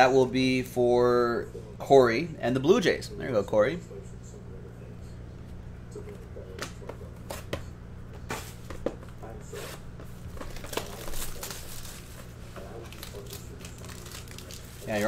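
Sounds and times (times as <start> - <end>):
steady low hum: 0.0 - 15.0
plastic wrap crinkling: 10.3 - 15.0.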